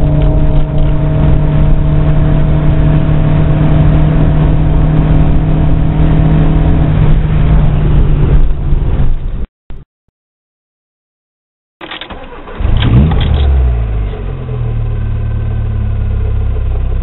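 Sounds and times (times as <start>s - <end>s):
engine drone in car cabin: 0.0s - 9.2s.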